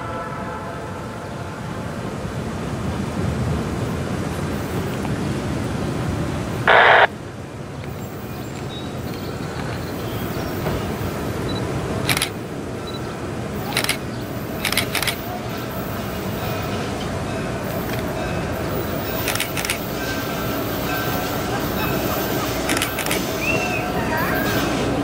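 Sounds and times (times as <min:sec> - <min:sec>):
loud burst of noise: 0:06.6 - 0:07.1.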